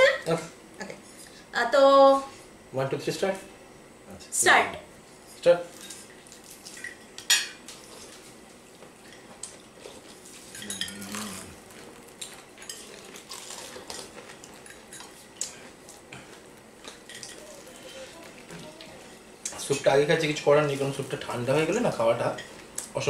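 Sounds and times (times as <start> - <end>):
cutlery clinking on plates: 10.5 - 11.0.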